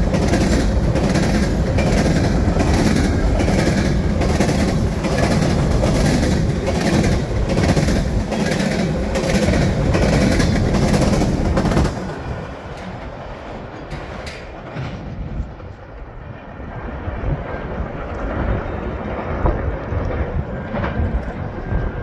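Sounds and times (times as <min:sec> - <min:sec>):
train wheels clacking over rail joints: 0:00.0 - 0:16.4.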